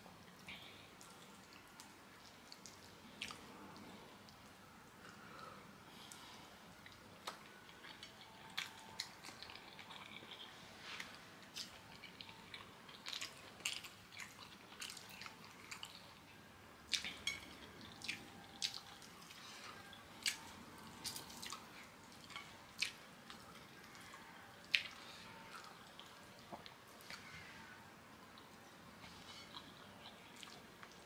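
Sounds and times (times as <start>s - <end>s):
wet chewing smacks and clicks: 0.3s - 4.5s, 6.8s - 16.2s, 16.9s - 27.2s.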